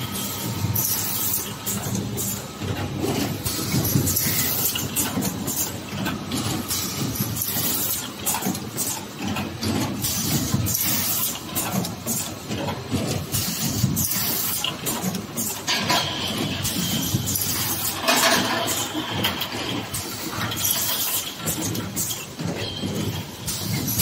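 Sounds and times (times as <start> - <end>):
pneumatic hisses and clatter: 13.3 - 18.9
machine rumbling: 14.8 - 24.0.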